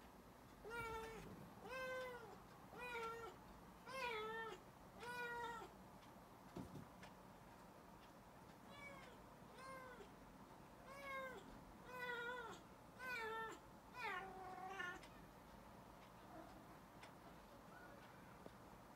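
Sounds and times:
cat meowing: 0:00.7 - 0:05.7, 0:10.9 - 0:15.1.

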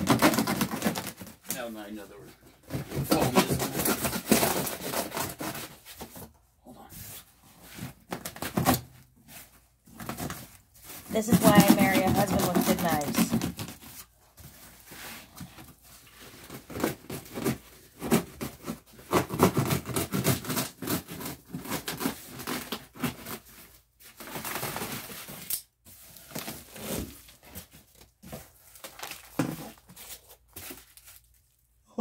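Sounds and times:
knife sawing through cardboard: 0:00.0 - 0:01.3, 0:02.7 - 0:06.2, 0:11.0 - 0:14.1, 0:16.2 - 0:23.8
cardboard and foam tearing: 0:00.0 - 0:02.0, 0:02.6 - 0:06.3, 0:07.6 - 0:31.4.

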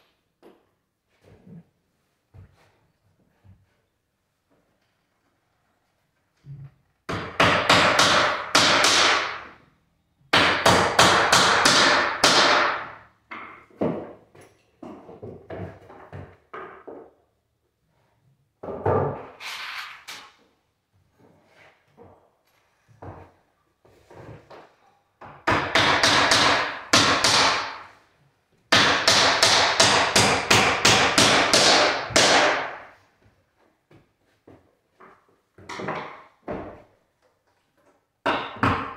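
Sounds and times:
hammer driving nails: 0:07.1 - 0:09.5, 0:10.3 - 0:13.6, 0:25.3 - 0:27.9, 0:28.7 - 0:32.9.

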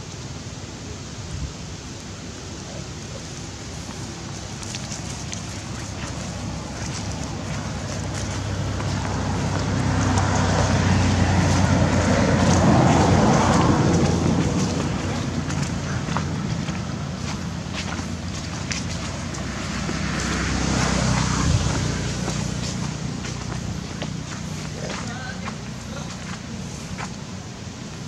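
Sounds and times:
vehicle engine rumble: 0:00.0 - 0:28.0
light ticks and crackles: 0:03.2 - 0:10.7.

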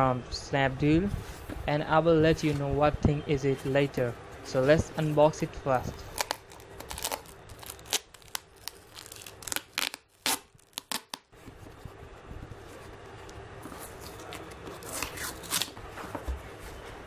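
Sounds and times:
paper and cardboard tearing: 0:06.0 - 0:11.2, 0:13.9 - 0:15.8
packing tape ripping: 0:06.0 - 0:11.3, 0:14.0 - 0:15.8.

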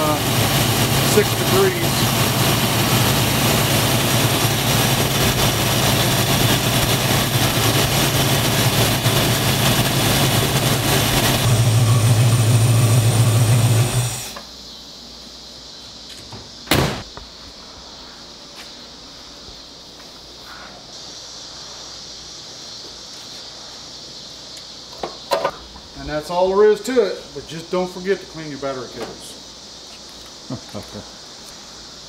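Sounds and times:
car engine idling: 0:00.0 - 0:14.1
sharp knock: 0:16.7 - 0:17.1.

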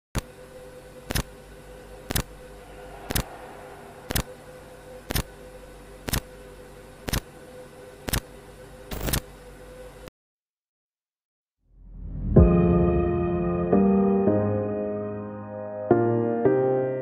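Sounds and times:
steady hum: 0:00.2 - 0:10.1.

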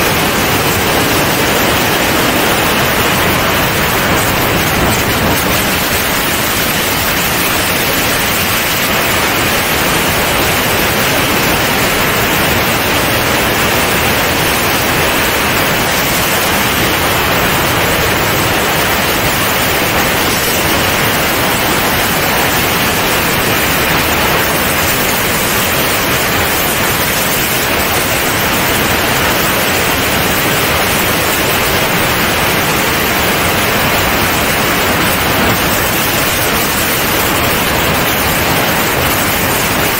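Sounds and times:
wind rushing past camera: 0:00.0 - 0:28.0.

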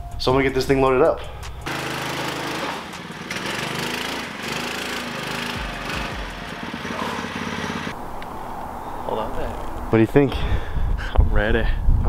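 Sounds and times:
go kart engine running: 0:01.7 - 0:08.0.

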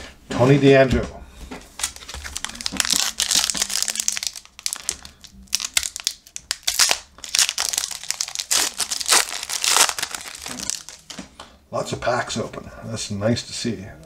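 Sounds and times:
foil wrapper tearing and crinkling: 0:01.7 - 0:11.2.

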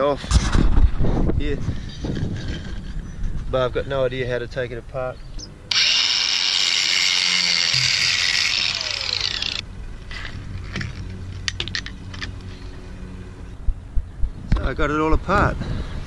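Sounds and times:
cordless drill running: 0:05.7 - 0:09.6.

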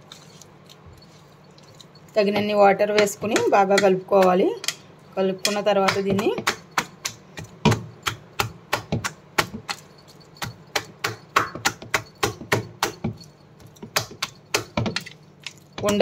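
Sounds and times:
hand slapping batter in bowl: 0:05.8 - 0:09.8.

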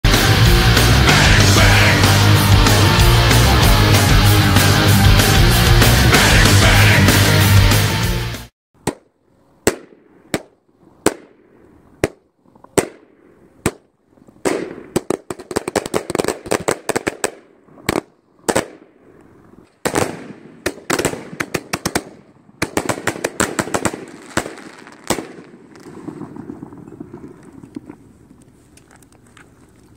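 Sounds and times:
small firework pops: 0:19.7 - 0:29.5
firework bangs: 0:19.8 - 0:27.9.

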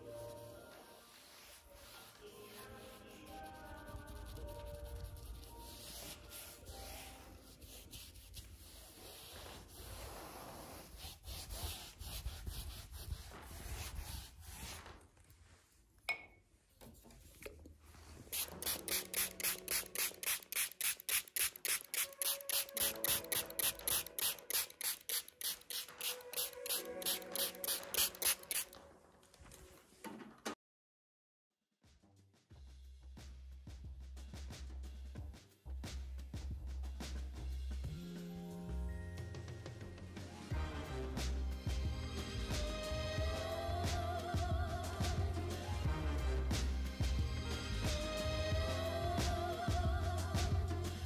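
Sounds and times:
brush stroking paint on canvas: 0:00.0 - 0:15.8, 0:17.0 - 0:28.8
spray bottle squirts: 0:18.3 - 0:28.8.

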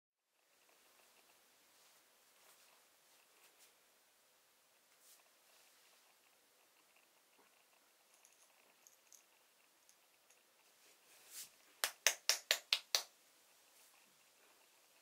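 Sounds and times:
coffee beans rattling in glass jar: 0:08.1 - 0:10.0.

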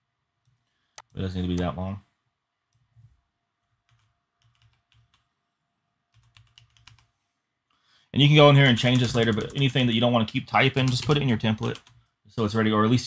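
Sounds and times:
computer keyboard keystrokes: 0:03.8 - 0:05.2, 0:06.2 - 0:07.1, 0:08.8 - 0:09.6.

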